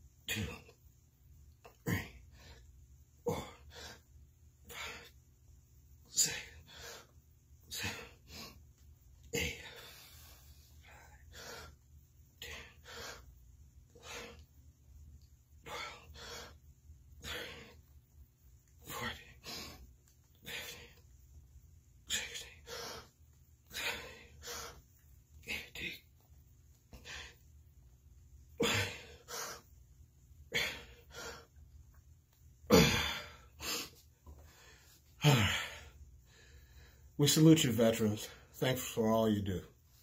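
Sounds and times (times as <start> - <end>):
man breathing hard: 6.1 - 14.6, 15.5 - 18.0, 18.8 - 21.2, 22.0 - 27.5, 28.6 - 29.8, 30.4 - 32.0, 32.7 - 37.2.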